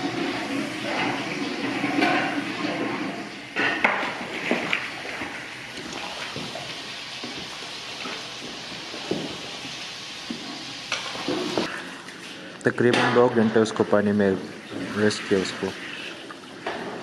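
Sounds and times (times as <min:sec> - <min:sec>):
paddle scraping metal pot: 0:00.0 - 0:04.6
broth boiling in a cauldron: 0:00.0 - 0:12.1.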